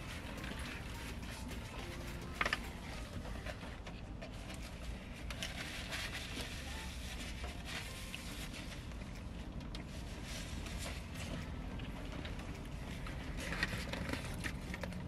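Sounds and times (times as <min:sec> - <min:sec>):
paper wrappers crinkling: 0:00.0 - 0:09.1
low hum inside a car: 0:00.0 - 0:15.0.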